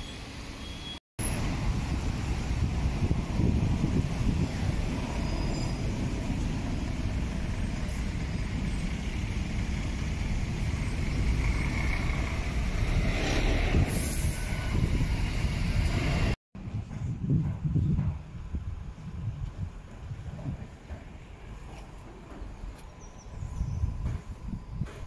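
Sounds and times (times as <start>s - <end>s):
road traffic rumbling: 0.0s - 25.0s
air brakes hiss: 13.8s - 14.6s.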